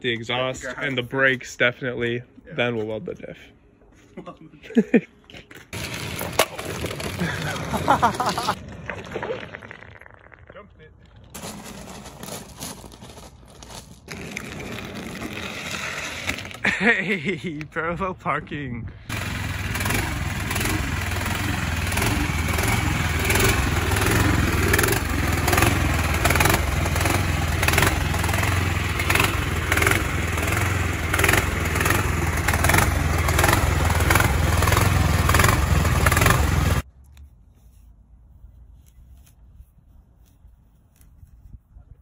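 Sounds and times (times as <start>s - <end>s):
small gasoline engine running: 5.8s - 8.5s, 19.1s - 36.8s.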